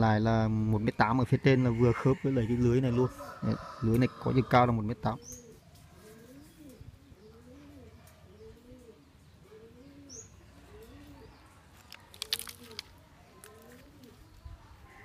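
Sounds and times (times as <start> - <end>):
dove cooing: 2.9 - 11.6, 12.2 - 15.0.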